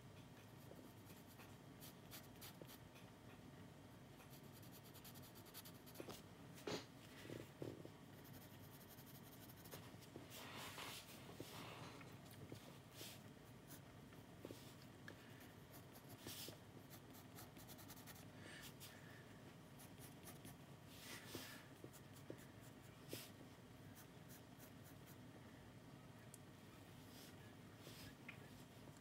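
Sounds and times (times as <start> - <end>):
pencil scratching on paper: 0.5 - 2.8, 4.2 - 6.2, 8.2 - 9.9, 15.7 - 18.3.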